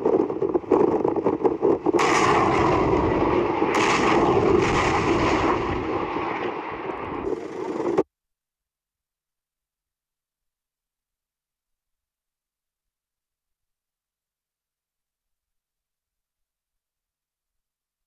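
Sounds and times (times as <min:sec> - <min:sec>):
rockets rushing: 0:00.0 - 0:08.0
rocket launcher blasts: 0:02.0 - 0:08.0.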